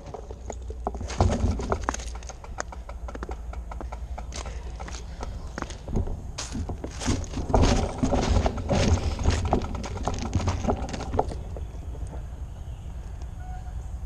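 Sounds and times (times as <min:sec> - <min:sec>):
bike rattling: 0:00.0 - 0:12.8
bike tyres crunching on rocks: 0:04.3 - 0:12.3.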